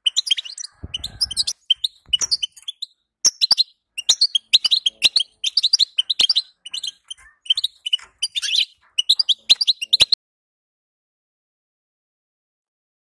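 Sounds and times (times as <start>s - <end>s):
goldfinch chattering twitter: 0.0s - 10.2s.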